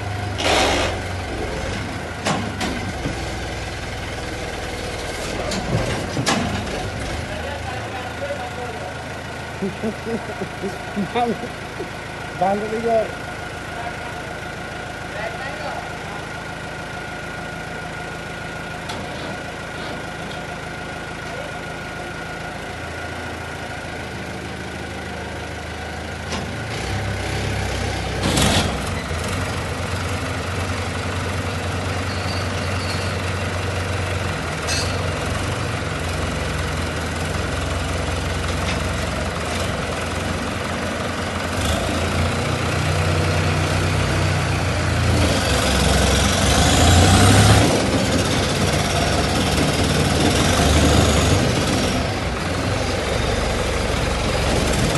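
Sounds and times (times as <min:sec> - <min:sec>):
diesel tractor engines revving: 0:00.0 - 0:54.9.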